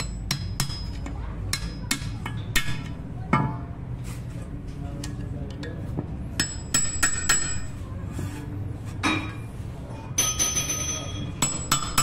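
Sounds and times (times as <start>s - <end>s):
hammer striking steel punch: 0.0s - 3.6s, 6.4s - 7.7s, 10.2s - 12.0s.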